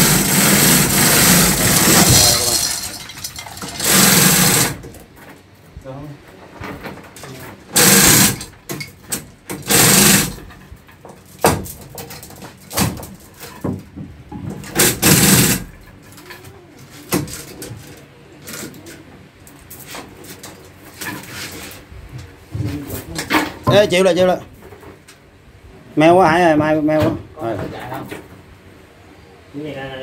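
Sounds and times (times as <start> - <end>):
metal knocks and clanks: 0.0 - 4.7
hoist chains rattling: 0.0 - 4.8, 7.8 - 8.6, 9.6 - 10.4.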